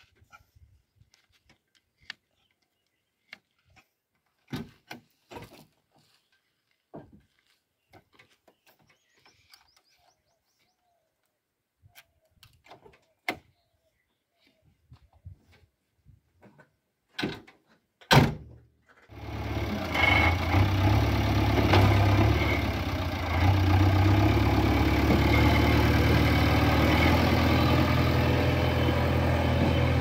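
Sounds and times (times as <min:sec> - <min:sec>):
faint bird chirps: 0:07.8 - 0:12.4.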